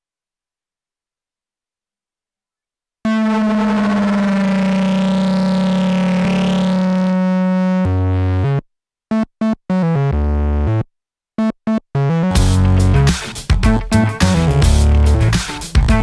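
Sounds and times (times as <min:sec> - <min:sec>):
synthesizer bass notes: 0:03.1 - 0:08.6, 0:12.0 - 0:16.0.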